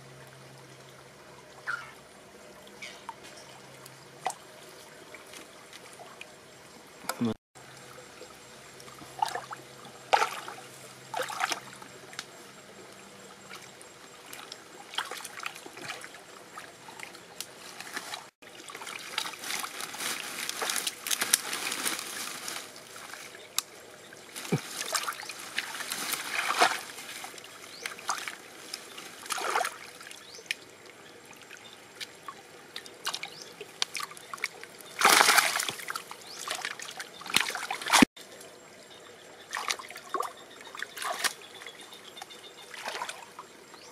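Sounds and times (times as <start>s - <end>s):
stream trickling: 0.0s - 43.9s
hands splashing in water: 24.4s - 27.0s, 35.0s - 38.1s.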